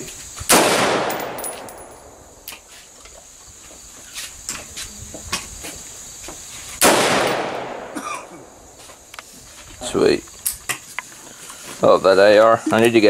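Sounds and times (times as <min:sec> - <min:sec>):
rifle shots echoing: 0:00.5 - 0:02.4, 0:06.8 - 0:08.6.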